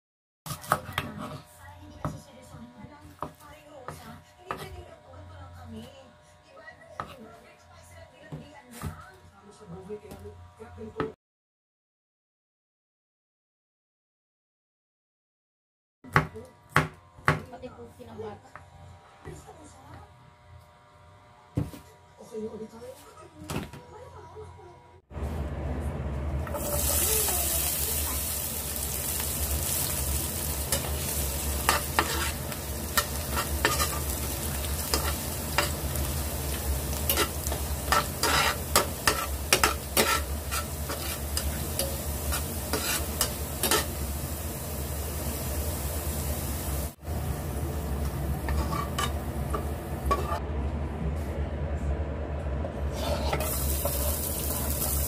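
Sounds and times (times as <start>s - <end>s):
potato frying in hot oil: 26.5s - 47.8s, 53.4s - 55.0s
metal spatula scraping pan: 30.6s - 44.0s, 48.5s - 50.4s, 52.9s - 55.0s.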